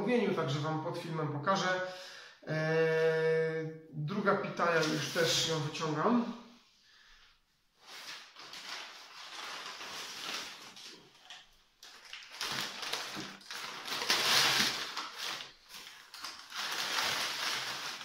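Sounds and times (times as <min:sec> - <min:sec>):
paper wrapping rustling: 0:07.8 - 0:18.0.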